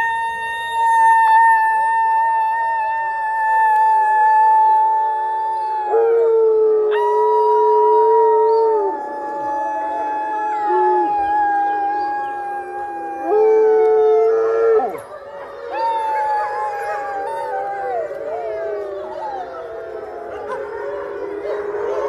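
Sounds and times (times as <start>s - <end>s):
wolf dogs howling: 0.0s - 22.0s
woman howling: 0.0s - 22.0s.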